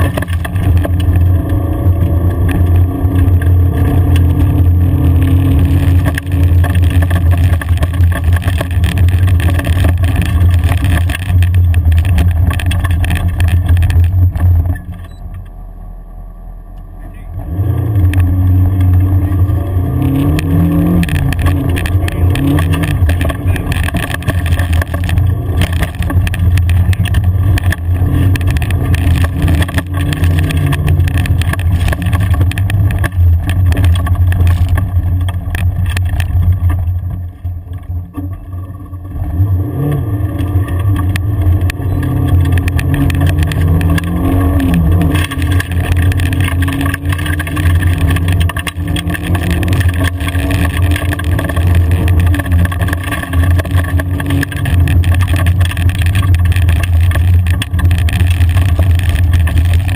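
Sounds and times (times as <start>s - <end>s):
vehicle knocks and rattles: 0.0s - 15.4s, 20.2s - 39.3s, 40.3s - 59.9s
vehicle engine accelerating: 0.0s - 59.9s.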